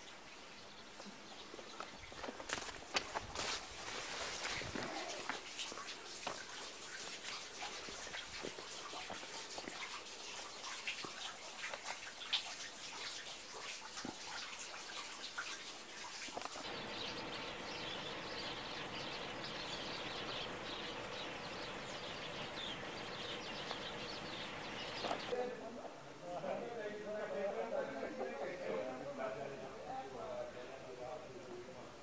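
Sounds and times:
small birds chirping: 0.0 - 2.5, 16.3 - 25.4
steady hiss: 3.0 - 25.4
faint steady hum: 16.4 - 25.3.

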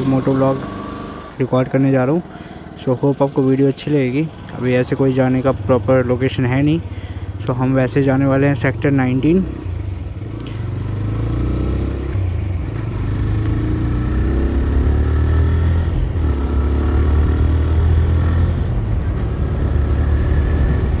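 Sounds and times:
motorcycle engine while riding: 0.0 - 21.0.

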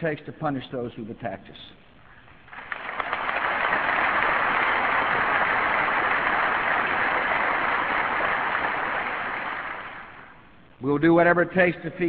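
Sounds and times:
audience applauding: 2.5 - 10.3.

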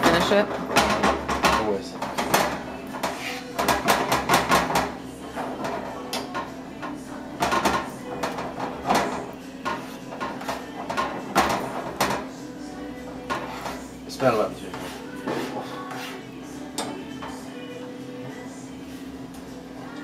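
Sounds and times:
metal spoon scraping a pan: 2.2 - 4.2, 7.4 - 12.2, 13.2 - 14.0, 14.6 - 16.3.

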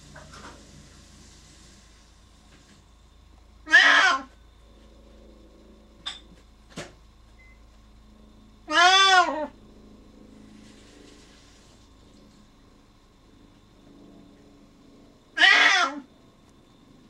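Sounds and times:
cat meowing: 3.7 - 4.3, 8.7 - 9.5, 15.4 - 16.1.

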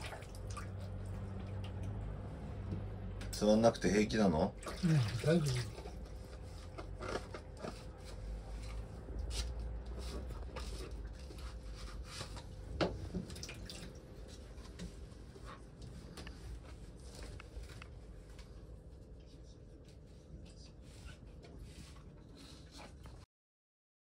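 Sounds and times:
dripping water: 0.0 - 2.2, 4.6 - 6.0, 13.3 - 14.1.

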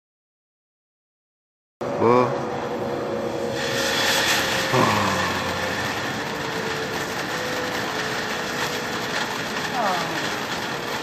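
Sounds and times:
firework hissing and crackling: 2.4 - 11.0.

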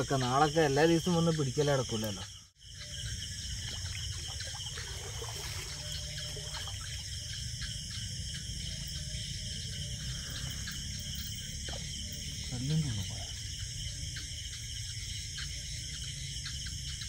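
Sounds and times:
night insects chirring: 0.0 - 17.0
stream water splashing: 3.5 - 7.2.

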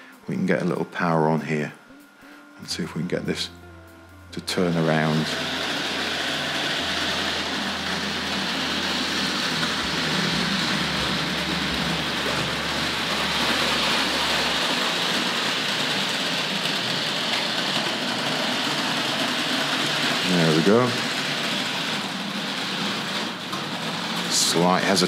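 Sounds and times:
low hum: 1.1 - 19.8
model train motor whirr: 4.4 - 25.0.

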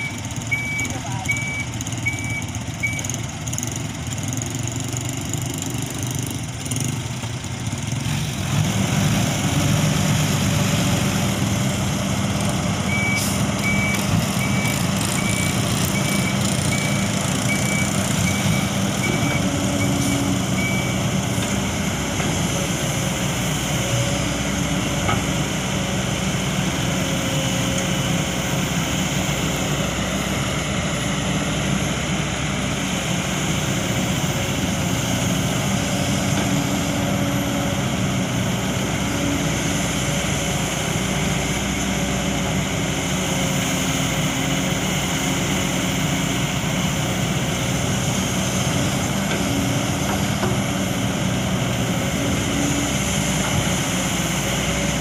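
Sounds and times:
excavator diesel engine droning: 0.0 - 55.0.

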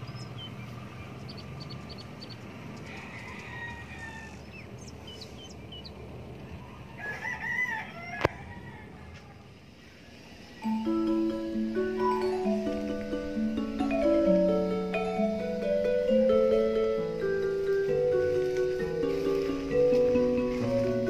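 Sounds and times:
small birds chirping: 0.0 - 6.9
rooster crowing: 2.8 - 4.6, 6.3 - 10.8.

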